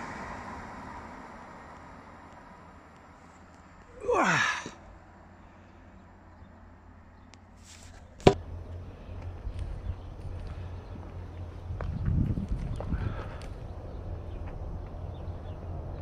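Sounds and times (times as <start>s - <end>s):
person sighing: 3.9s - 4.8s.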